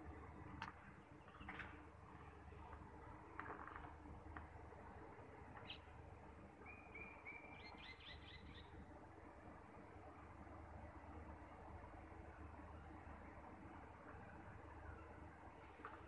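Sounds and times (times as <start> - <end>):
low steady background noise: 0.0 - 16.0
faint bird chirps: 6.6 - 8.8.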